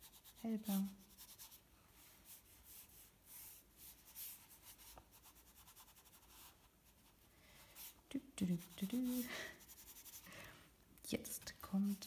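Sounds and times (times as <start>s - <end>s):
brush pen rubbing on paper: 0.0s - 1.6s, 2.2s - 7.2s, 7.8s - 10.3s.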